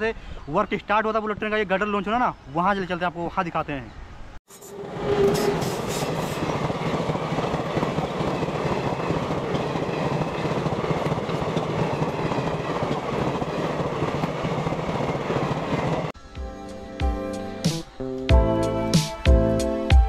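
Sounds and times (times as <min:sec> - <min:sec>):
train wheels on rails: 0:04.5 - 0:16.1.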